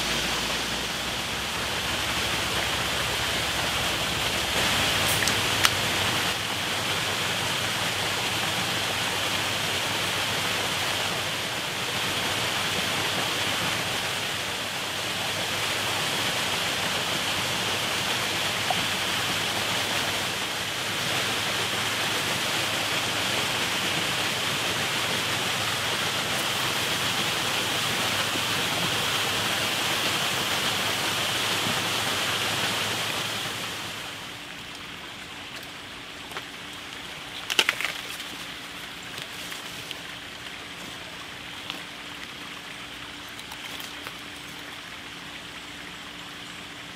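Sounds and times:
waterfall rushing: 0.0 - 46.2.

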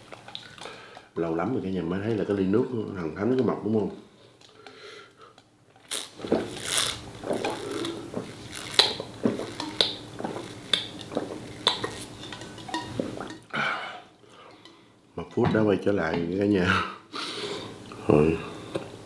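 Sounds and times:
biting and chewing: 5.8 - 12.0
dishes and utensils clinking: 8.8 - 10.4, 11.2 - 13.5.

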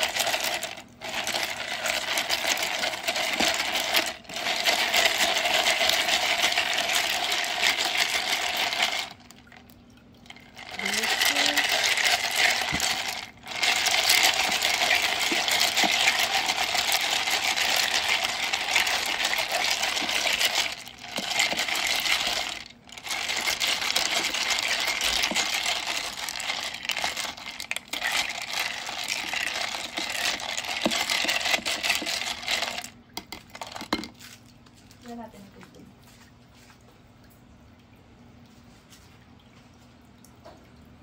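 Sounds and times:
ice cubes clinking in a tub: 0.0 - 9.6, 10.2 - 35.5.

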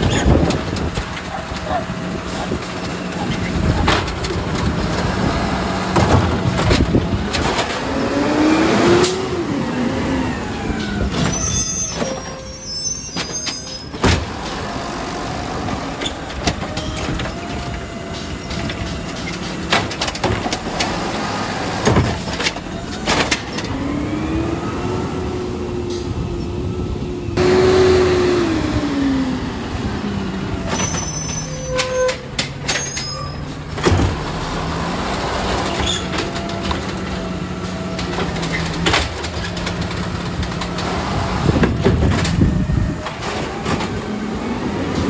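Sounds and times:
truck diesel engine revving: 0.0 - 11.2, 20.4 - 30.5, 33.5 - 45.0
high squeal: 9.9 - 14.0, 30.5 - 33.5.

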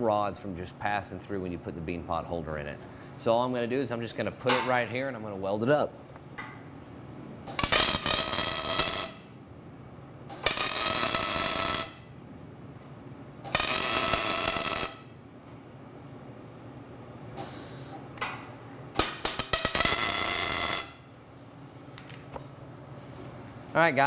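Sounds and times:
welding arc buzzing: 7.5 - 9.4, 10.3 - 12.1, 13.4 - 15.2, 19.0 - 21.1.

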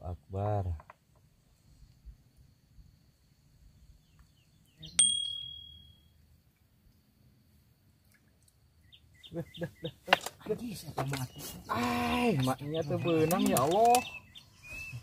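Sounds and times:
faint outdoor background: 0.0 - 15.0
bright metallic ding: 5.0 - 6.1.

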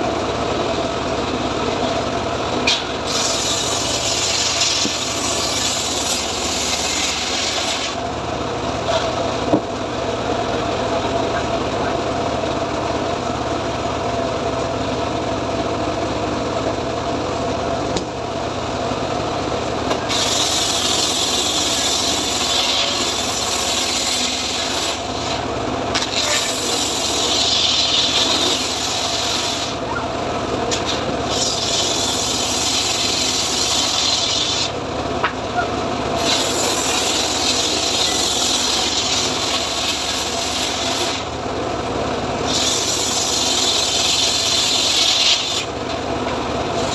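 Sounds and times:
saw bench engine running: 0.0 - 46.9
saw blade ripping boards: 2.6 - 8.0, 19.9 - 29.8, 30.7 - 34.8, 36.2 - 41.3, 42.4 - 45.8.

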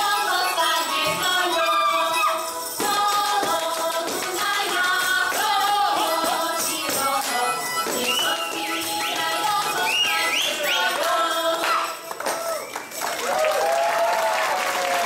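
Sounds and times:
person singing: 0.0 - 12.0
live band playing folk dance music: 0.0 - 13.0.

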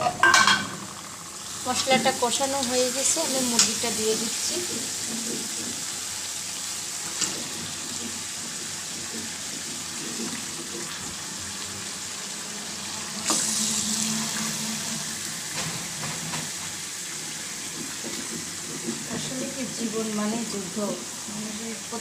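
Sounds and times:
spices sizzling in a pan: 0.0 - 22.0.

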